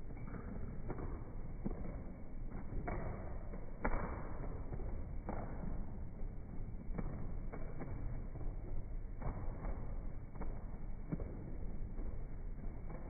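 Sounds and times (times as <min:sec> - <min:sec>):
ceiling fan rumble: 0:00.0 - 0:13.0.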